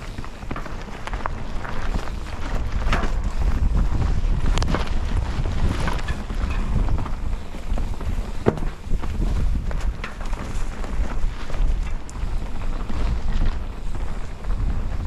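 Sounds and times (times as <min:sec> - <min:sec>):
bike riding rumble on trail: 0:00.0 - 0:15.0
wind buffeting microphone: 0:00.0 - 0:15.0
sharp knocks from bike: 0:08.3 - 0:10.6.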